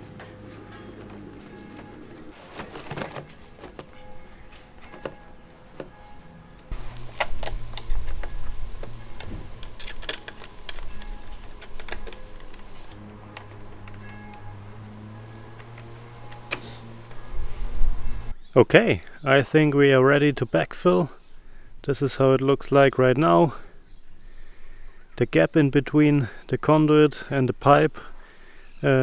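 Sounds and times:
background music: 0.0s - 18.4s
hands fitting pipe clamp: 7.2s - 14.4s.

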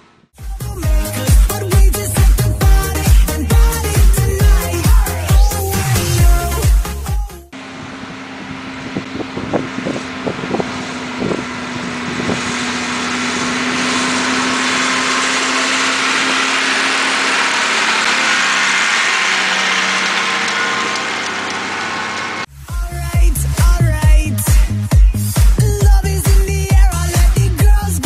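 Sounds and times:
tractor engine drone: 0.0s - 28.0s
harrow discs rattling through soil: 13.4s - 22.5s.

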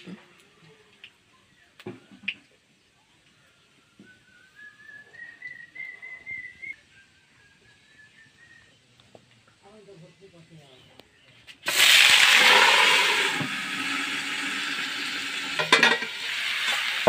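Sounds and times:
thin whistling tone rising: 3.4s - 8.9s.

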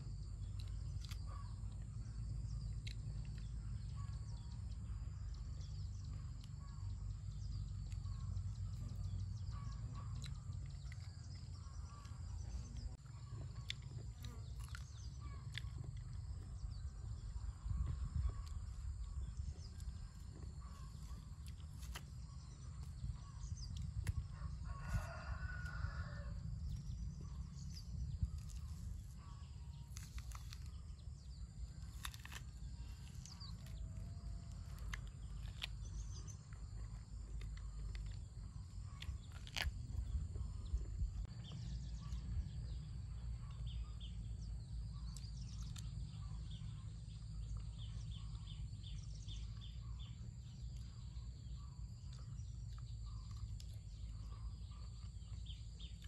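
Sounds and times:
steady low rumble: 0.0s - 56.0s
rooster crowing: 24.3s - 26.4s.

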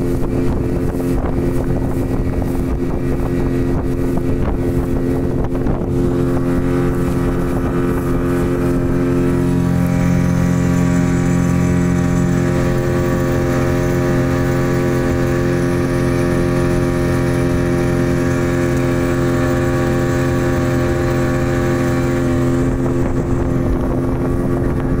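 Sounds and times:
boat engine droning: 0.0s - 25.0s.

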